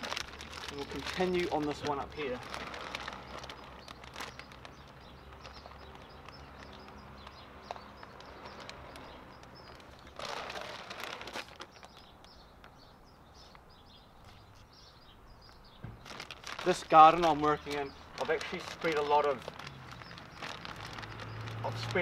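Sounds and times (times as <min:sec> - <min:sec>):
plastic bag rustling: 0:00.0 - 0:06.8, 0:07.7 - 0:12.1, 0:16.0 - 0:22.0
small birds chirping: 0:00.0 - 0:22.0.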